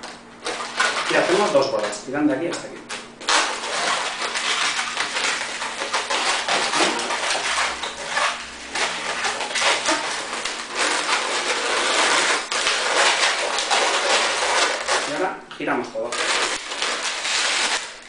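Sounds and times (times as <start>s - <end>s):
balloon rubber squeaking: 3.2s - 15.3s, 16.1s - 18.0s.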